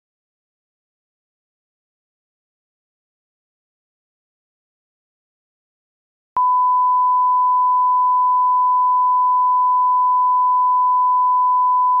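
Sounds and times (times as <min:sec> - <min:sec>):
steady test tone beep: 0:06.4 - 0:12.0.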